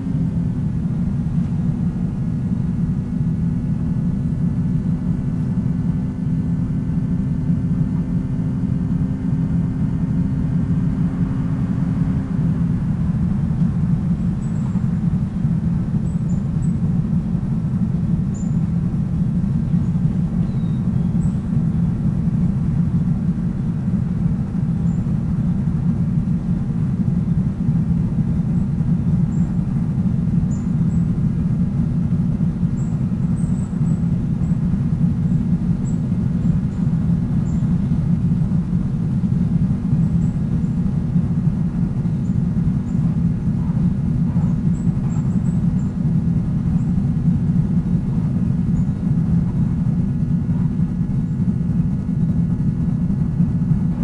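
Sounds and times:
even hum: 0:00.0 - 0:54.0
vehicle rumble: 0:00.0 - 0:54.0
faint high chirps: 0:20.4 - 0:21.1.

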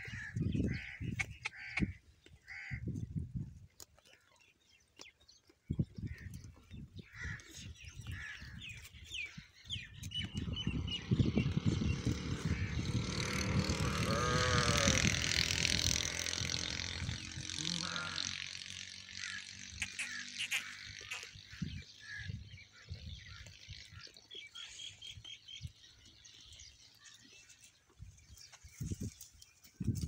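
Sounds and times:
animals chewing dry grass: 0:00.0 - 0:30.0
sheep bleat: 0:17.6 - 0:18.3.

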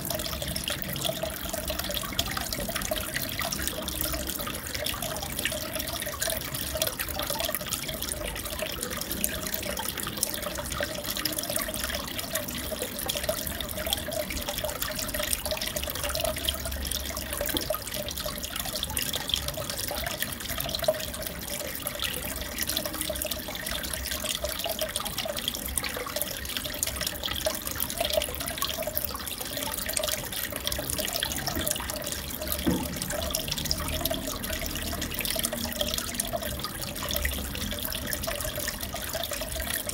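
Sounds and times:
aquarium water bubbling: 0:00.0 - 0:39.9.

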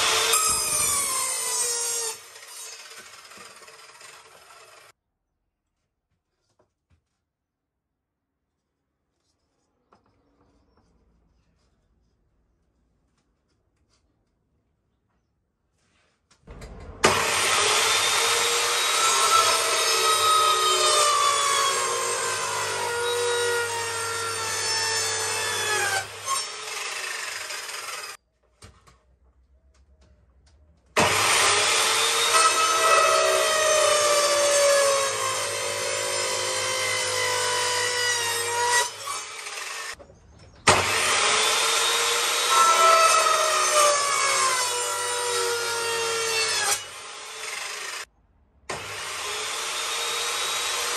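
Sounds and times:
electric planer whining on wood: 0:17.1 - 0:28.2, 0:48.8 - 0:50.9.

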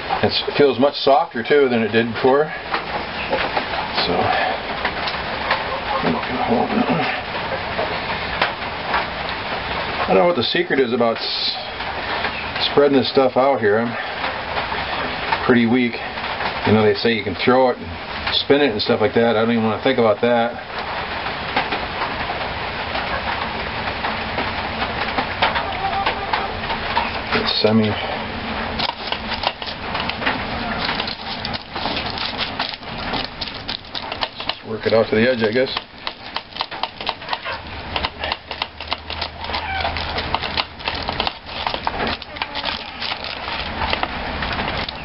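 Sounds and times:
steady rain falling: 0:00.0 - 0:45.0
chicken clucking: 0:05.2 - 0:08.0, 0:25.4 - 0:28.0, 0:28.8 - 0:45.0
parchment paper crackling: 0:25.3 - 0:45.0.

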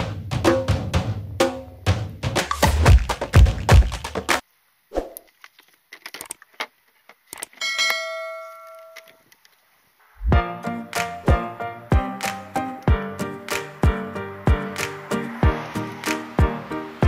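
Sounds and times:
drum-backed music: 0:00.0 - 0:04.4, 0:10.3 - 0:17.0
bell ding: 0:07.6 - 0:09.2.

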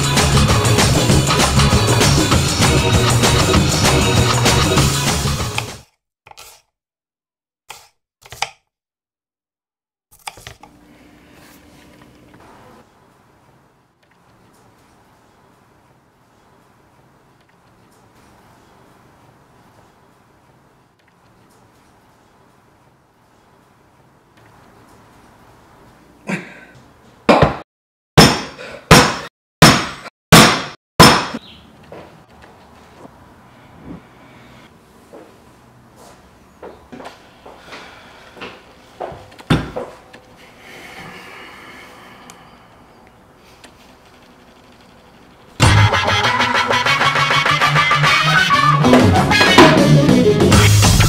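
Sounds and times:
background music: 0:00.0 - 0:05.8, 0:45.6 - 0:51.0
thwacks on cutting board: 0:28.2 - 0:31.4.

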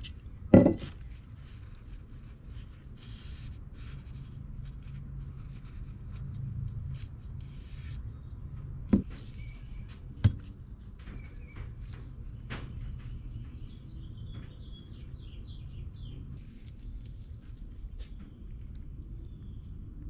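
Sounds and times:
low steady hum: 0:00.0 - 0:20.0
parts knocking on workbench: 0:00.6 - 0:00.9.

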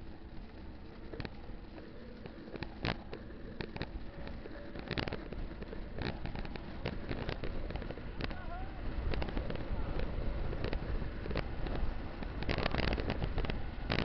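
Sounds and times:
bike clicks and knocks: 0:00.0 - 0:14.0
wind rumbling on microphone: 0:00.0 - 0:14.0.

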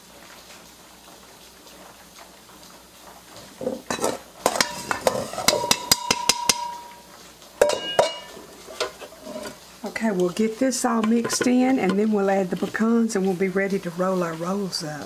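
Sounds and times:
metal cup tapping a bowl: 0:05.5 - 0:06.9, 0:07.6 - 0:08.3.

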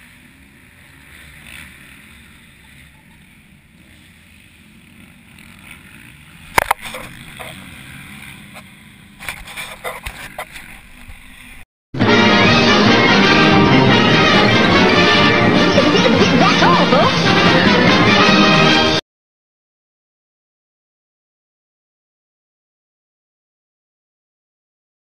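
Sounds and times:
faint steady rush: 0:00.0 - 0:11.6
distant dirt-bike engines: 0:00.0 - 0:11.7, 0:12.9 - 0:19.0.

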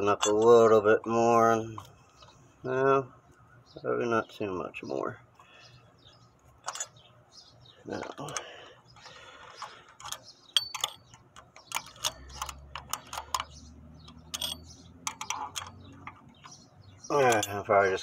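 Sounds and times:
metal tool clicking and tapping: 0:09.6 - 0:16.6.

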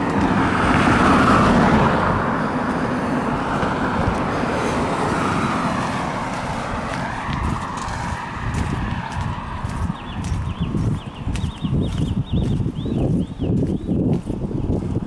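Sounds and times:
car driving past: 0:00.0 - 0:10.6
steady traffic noise: 0:00.0 - 0:15.0.

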